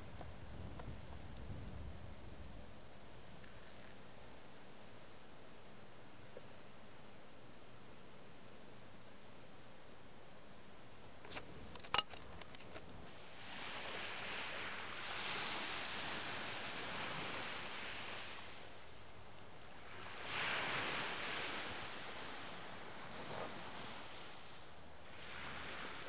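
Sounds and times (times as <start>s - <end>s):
waves washing on sandy beach: 12.7s - 26.0s.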